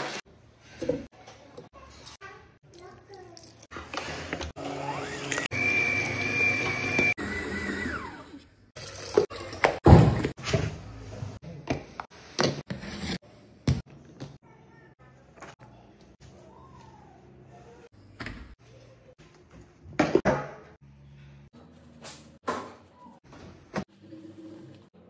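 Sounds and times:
stand mixer motor whining: 4.6 - 8.5.

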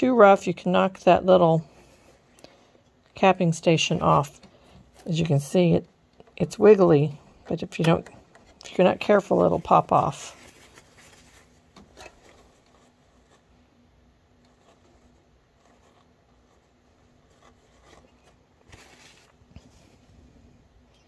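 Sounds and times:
paper towel rustling: 8.7 - 13.6, 14.5 - 20.5.

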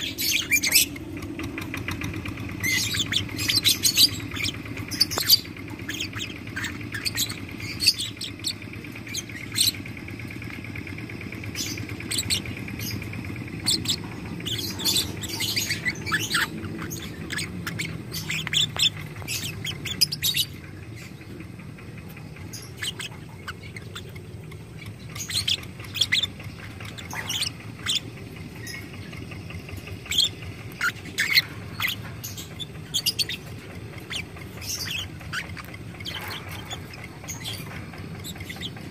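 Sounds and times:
lovebird rattling trill: 0.0 - 38.9.

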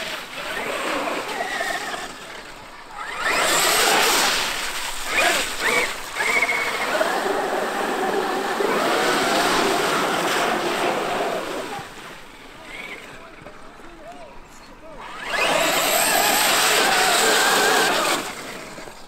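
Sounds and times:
electric motor whining: 0.0 - 11.8, 15.0 - 19.0
tyres splashing water: 2.8 - 12.0.

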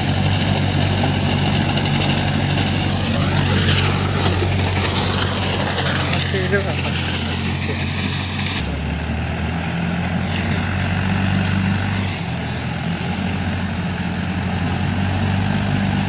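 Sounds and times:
rotary slasher cutting dry stalks: 0.0 - 16.0
tractor engine running: 0.0 - 16.0.

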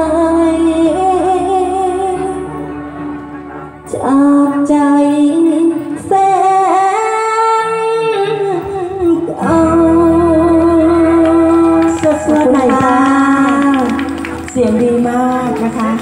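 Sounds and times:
woman singing into microphone: 0.0 - 2.7, 3.9 - 16.0
backing music: 0.0 - 6.9, 8.4 - 16.0.

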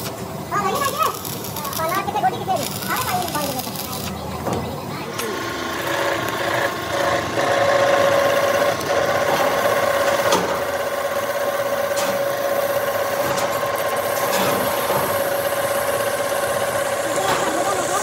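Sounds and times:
drill press whining: 5.1 - 18.0.

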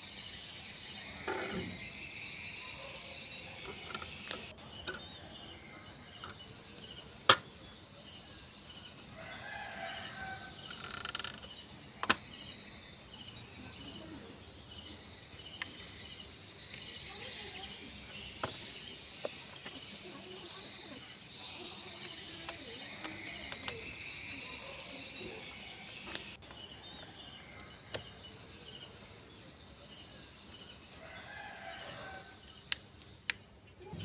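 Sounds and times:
insect chirr: 0.0 - 34.0
rooster crowing: 9.2 - 11.0
sharp plastic clicks: 12.0 - 12.3.

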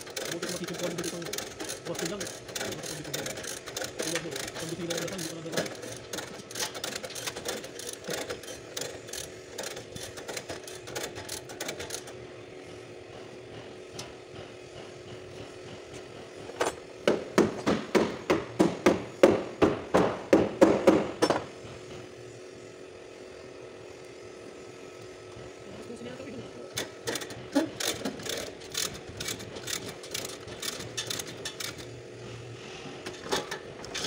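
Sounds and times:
chain hoist ratcheting clicks: 0.0 - 12.2, 26.7 - 32.0, 33.1 - 34.0.

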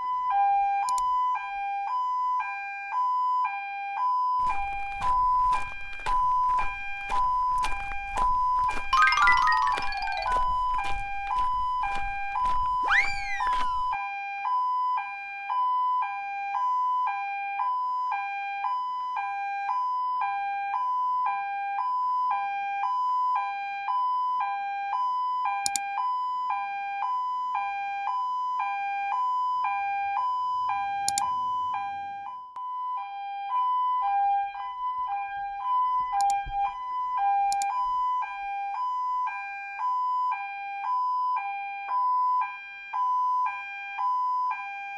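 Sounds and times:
two-tone toy police siren: 0.0 - 44.9
rising and falling tone: 4.6 - 14.0.

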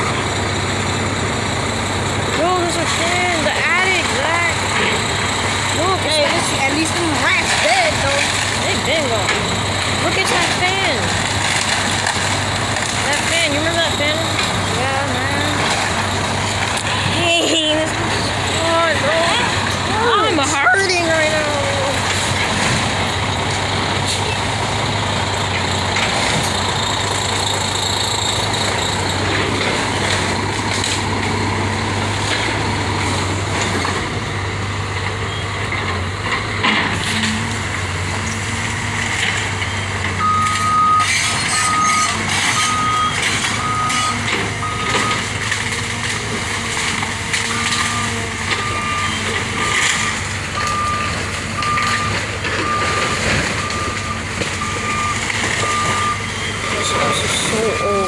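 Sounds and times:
excavator diesel engine running: 0.0 - 58.0
falling debris: 0.1 - 58.0
splintering lumber crashes: 2.3 - 17.0
backup alarm beeping: 39.6 - 45.3, 47.6 - 58.0.

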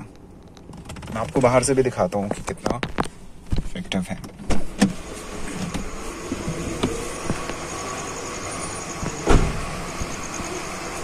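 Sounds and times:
steady low hum: 0.0 - 11.0
car door thumping shut: 9.0 - 9.8.

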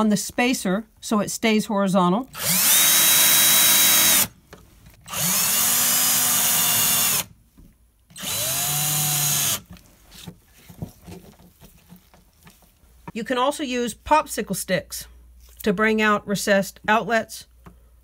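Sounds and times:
cordless drill whining: 2.3 - 4.4, 5.0 - 7.3, 8.1 - 10.3.

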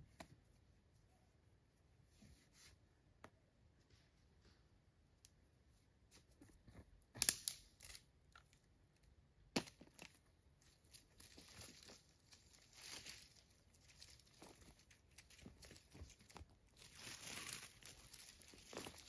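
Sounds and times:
sharp branch cracks: 7.2 - 8.0
twigs and leaves crackling: 9.6 - 19.0.

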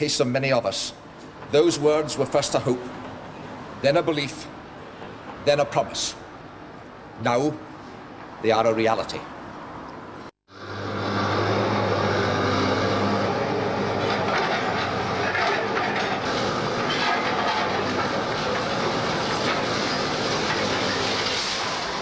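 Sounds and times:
diesel engine drone: 10.5 - 22.0.

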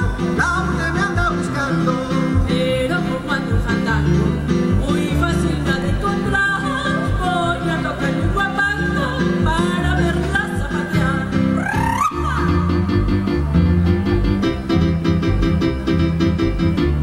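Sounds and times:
instrumental accompaniment with bass beat: 0.0 - 17.0
woman singing: 2.4 - 12.9.

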